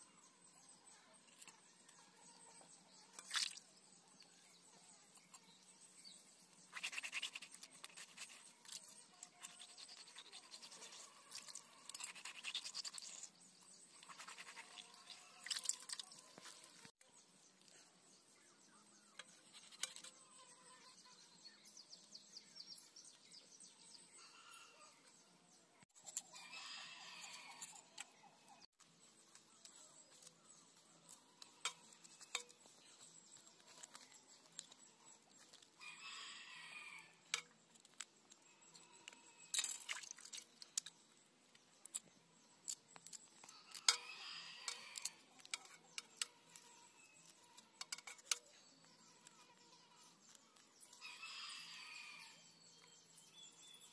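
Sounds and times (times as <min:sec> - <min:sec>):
knife scraping fish: 0:06.7 - 0:13.4.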